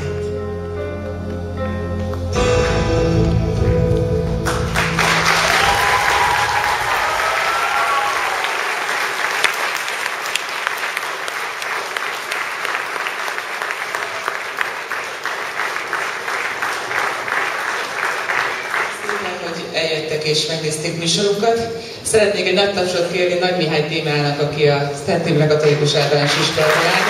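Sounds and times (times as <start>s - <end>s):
song backing music: 0.0s - 7.7s
audience applauding: 4.4s - 19.7s, 25.6s - 27.0s.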